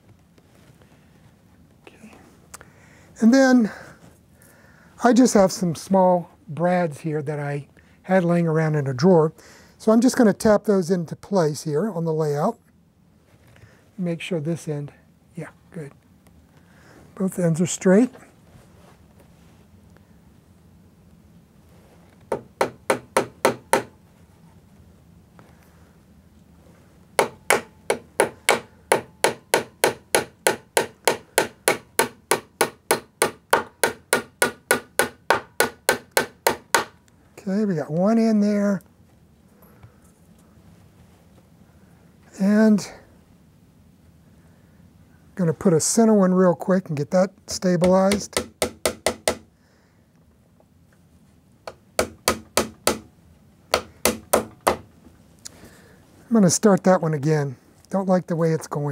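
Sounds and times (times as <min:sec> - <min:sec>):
small hammer tapping nail into wood: 0:22.3 - 0:23.9, 0:47.8 - 0:49.4, 0:51.7 - 0:53.1, 0:53.7 - 0:54.8.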